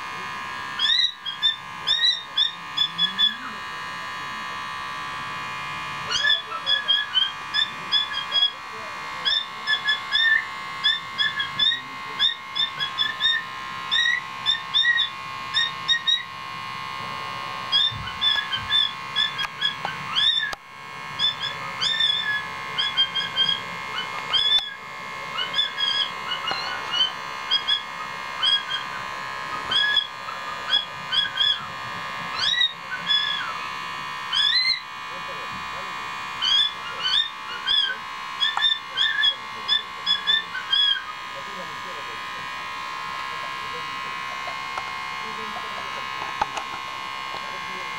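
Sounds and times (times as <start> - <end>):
steady high background hum: 0.0 - 47.9
cockatiel chirping and warbling: 0.8 - 3.6, 6.1 - 8.6, 9.2 - 16.3, 17.7 - 20.6, 21.2 - 31.7, 32.3 - 33.7, 34.3 - 34.9, 36.4 - 41.2.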